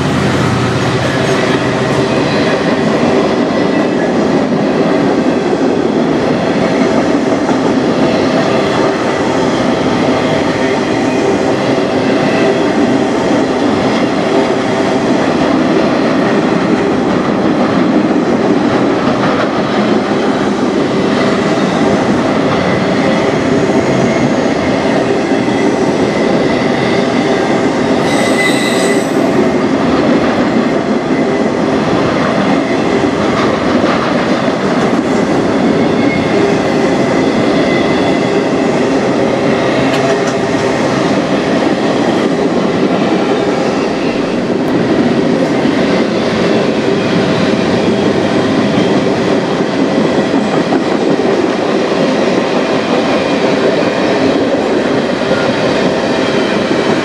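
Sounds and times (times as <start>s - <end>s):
freight train wheels rumbling: 0.0s - 57.0s
high-pitched wheel squeal: 28.0s - 29.2s.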